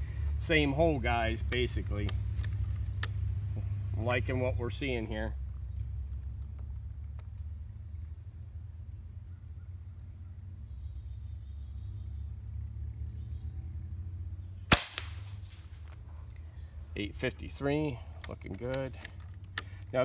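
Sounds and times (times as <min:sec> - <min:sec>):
insects chirring: 0:00.0 - 0:20.0
air rifle shot crack: 0:14.7 - 0:15.6.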